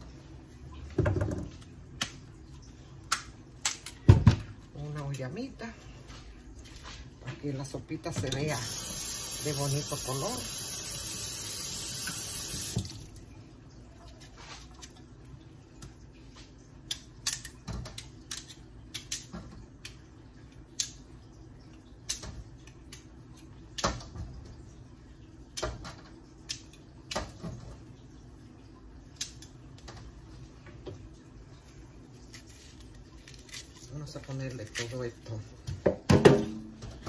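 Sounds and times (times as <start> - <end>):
loud steady hiss: 8.6 - 12.8.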